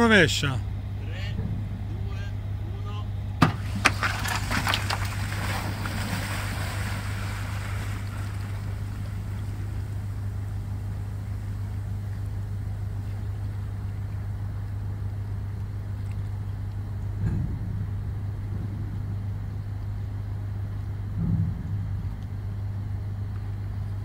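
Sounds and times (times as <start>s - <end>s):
low machinery hum: 0.0s - 24.0s
water splashing and churning: 3.4s - 14.4s.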